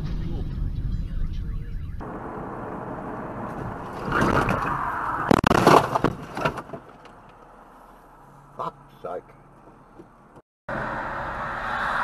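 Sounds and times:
car crash bang: 2.0s - 6.8s.

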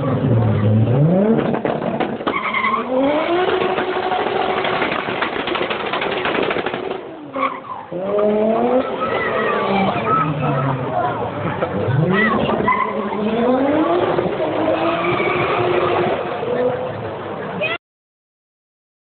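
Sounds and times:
car engine revving hard: 2.7s - 5.2s, 7.9s - 17.0s
tyres screeching: 11.9s - 13.4s.

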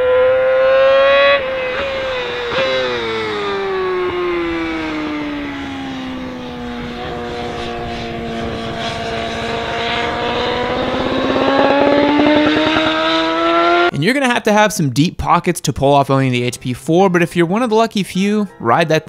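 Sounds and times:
motorcycle engine: 0.0s - 14.0s.

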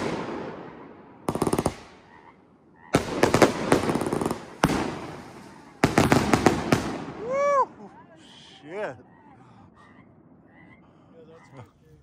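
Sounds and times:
fireworks bangs and crackling: 0.0s - 2.0s, 2.9s - 7.3s.

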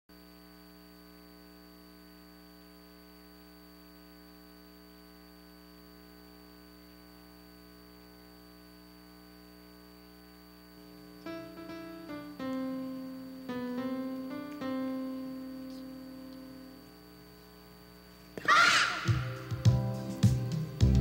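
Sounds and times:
electrical mains hum: 0.1s - 21.0s
high-pitched whine: 10.6s - 21.0s.

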